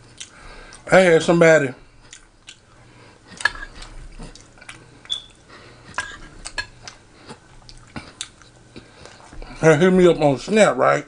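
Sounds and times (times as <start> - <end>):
wet chewing clicks: 2.1 - 2.7, 3.3 - 9.3.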